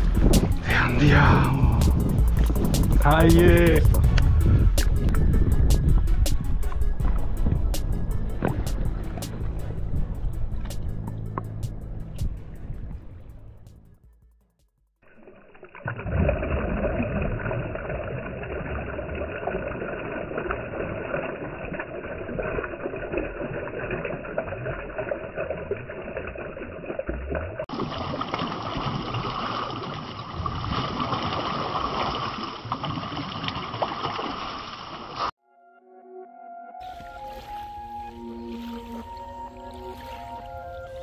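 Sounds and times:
wind noise: 0:00.0 - 0:13.7
low rumble: 0:00.0 - 0:14.1
water rushing: 0:15.0 - 0:35.3, 0:36.8 - 0:41.0.

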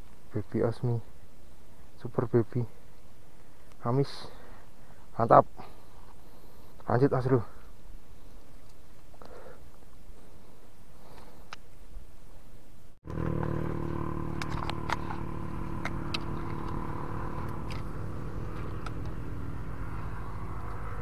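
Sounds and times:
vehicle engine idling hum: 0:13.1 - 0:21.0.

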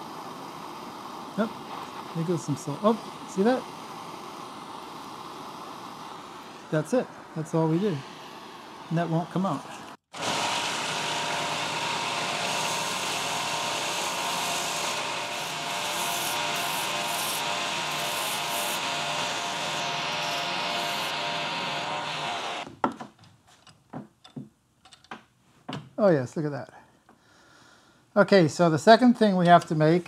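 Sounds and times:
faint motor hum: 0:00.0 - 0:22.6
power tool grinding metal: 0:10.1 - 0:22.6.

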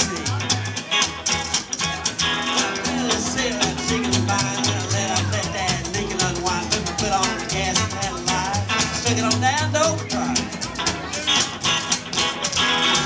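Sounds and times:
bending lead guitar: 0:00.0 - 0:13.0
strummed acoustic guitar: 0:00.0 - 0:13.0
upright bass notes: 0:00.0 - 0:13.0.

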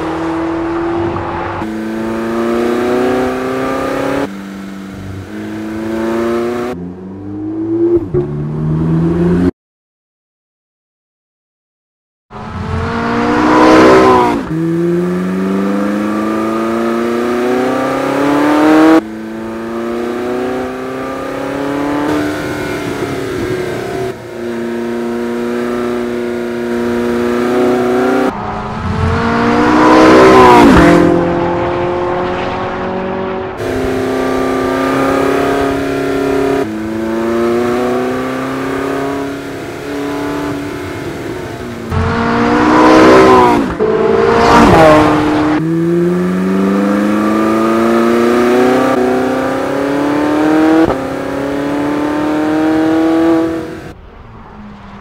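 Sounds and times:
sports car engine revving past: 0:12.7 - 0:54.0.

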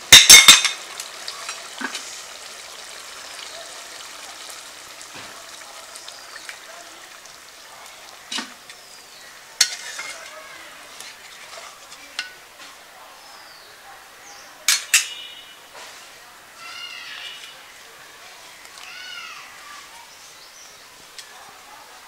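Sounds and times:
curry bubbling in a pot: 0:00.0 - 0:10.2
ladle clinking against pot: 0:00.1 - 0:00.8, 0:09.6 - 0:10.3.

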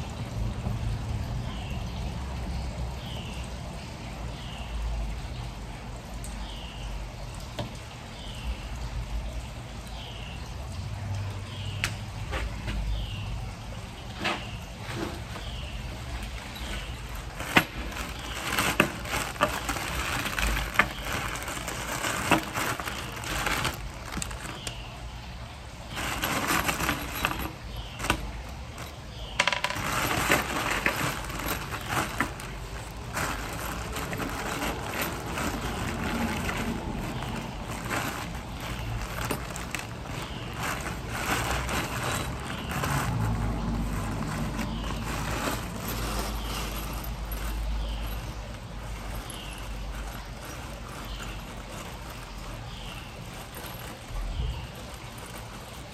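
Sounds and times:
plastic bags crinkling: 0:14.1 - 0:55.9
metal hardware clinking: 0:14.2 - 0:24.8, 0:25.9 - 0:43.1, 0:43.8 - 0:55.9.

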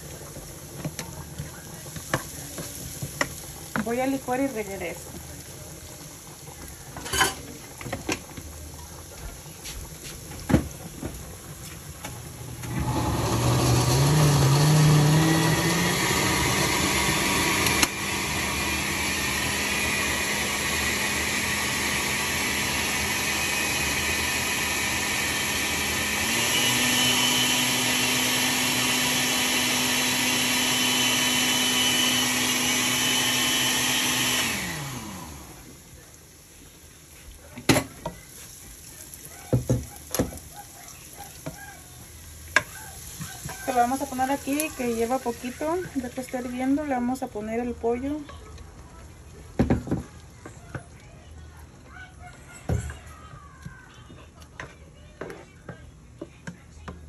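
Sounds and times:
blender motor running: 0:12.6 - 0:35.8.

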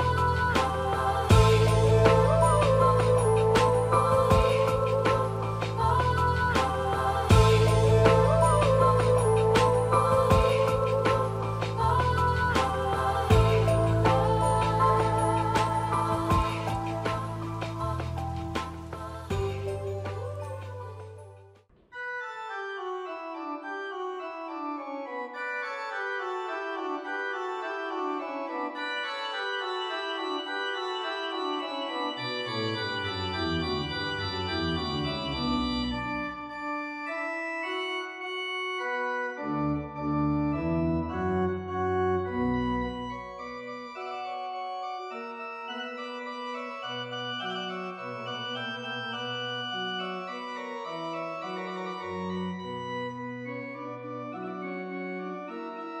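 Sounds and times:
deep bass pedal notes: 0:01.3 - 0:06.6
organ chords: 0:22.7 - 0:56.0.

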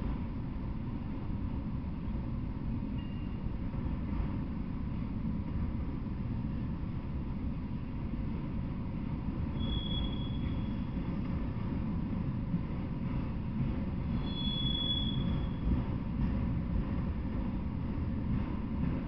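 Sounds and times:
train wheels rumbling on rail: 0:00.0 - 0:19.0
wheel squeal: 0:09.5 - 0:11.0, 0:14.1 - 0:15.7.

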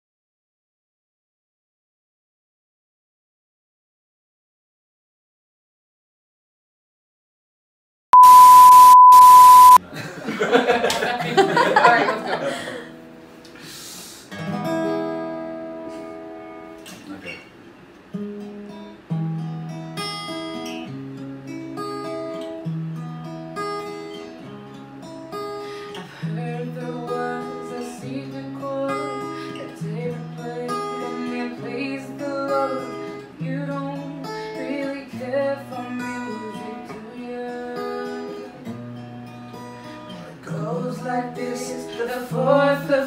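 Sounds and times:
acoustic guitar chords: 0:08.2 - 0:09.8, 0:18.1 - 0:43.0
woman singing: 0:26.2 - 0:38.4, 0:40.4 - 0:43.0.

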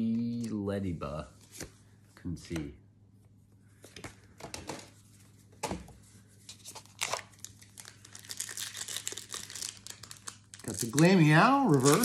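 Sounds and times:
foil wrappers crinkling and tearing: 0:06.6 - 0:12.0.

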